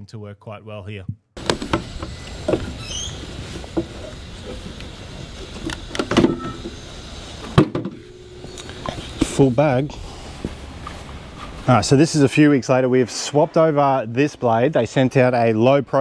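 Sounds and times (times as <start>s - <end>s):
electric mower cutting grass: 1.4s - 9.9s.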